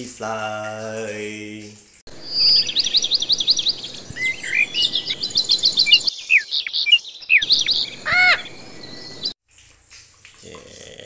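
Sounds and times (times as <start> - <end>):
bird chirps and whistles: 2.1 - 9.3
loud rising and falling bird call: 2.1 - 9.3.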